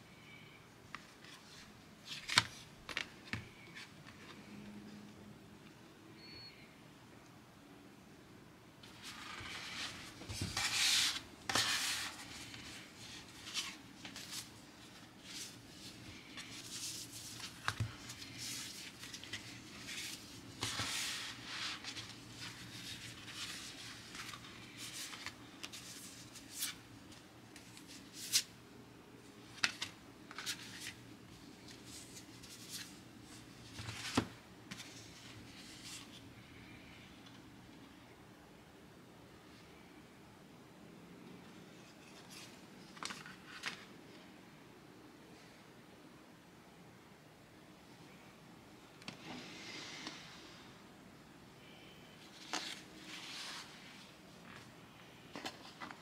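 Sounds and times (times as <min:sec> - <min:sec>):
paper cards rustling and sliding: 0:00.9 - 0:04.6, 0:08.8 - 0:28.5, 0:29.4 - 0:36.6, 0:41.8 - 0:44.0, 0:52.2 - 0:56.0.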